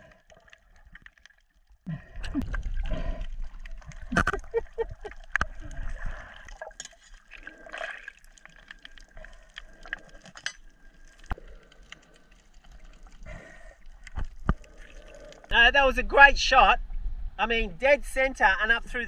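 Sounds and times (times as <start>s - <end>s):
underwater water and bubbles: 0.0s - 17.4s.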